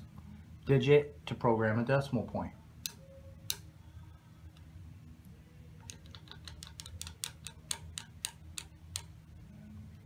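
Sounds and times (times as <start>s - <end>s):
screwdriver tip clicking on glass: 5.8s - 9.1s.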